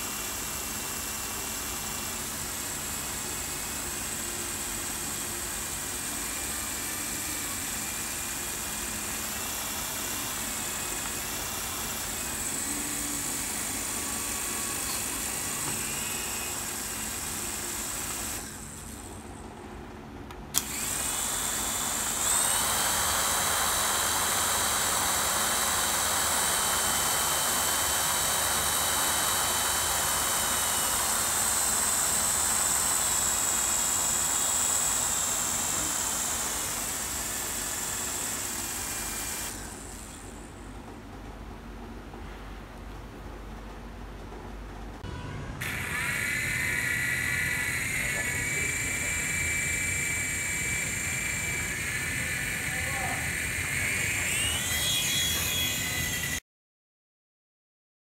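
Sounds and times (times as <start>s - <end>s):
electric motors whining: 0.0s - 19.4s, 20.5s - 40.6s, 45.0s - 56.4s
rotor blades whirring: 0.0s - 19.4s, 20.5s - 40.6s, 45.0s - 56.4s.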